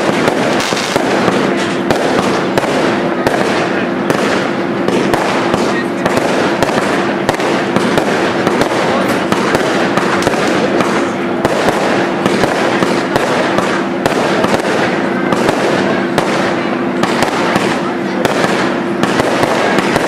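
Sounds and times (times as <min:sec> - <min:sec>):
fireworks firing and bursting: 0:00.0 - 0:20.0.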